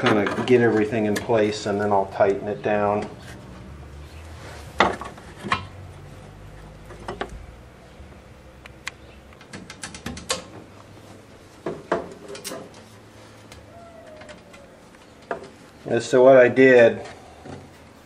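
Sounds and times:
metal screws clicking and knocking: 9.3s - 10.6s.

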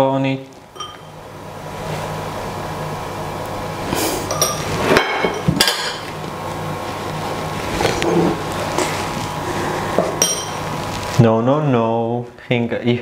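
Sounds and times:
steady hum: 0.0s - 13.0s
metal spoon clinking glass bowl: 0.8s - 1.1s, 10.2s - 10.6s.

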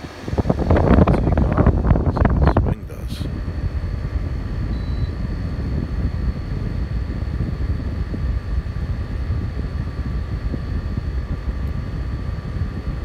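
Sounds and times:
air conditioner running: 0.0s - 13.0s.

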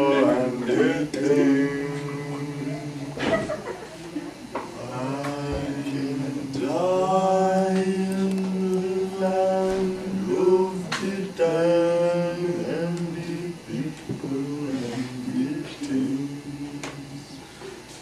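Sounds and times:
men chanting held notes: 0.0s - 3.3s.

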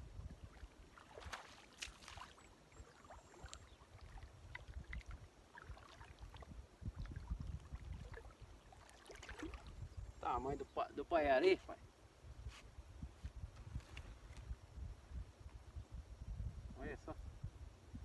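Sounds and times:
water sloshing and splashing: 0.5s - 9.9s.

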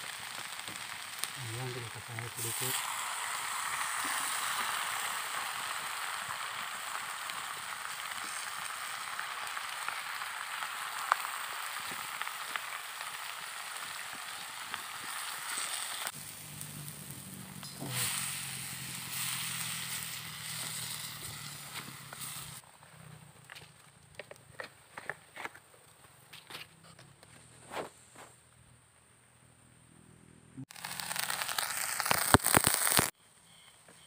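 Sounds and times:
leaves sizzling in a pan: 0.0s - 22.6s, 30.6s - 33.2s.

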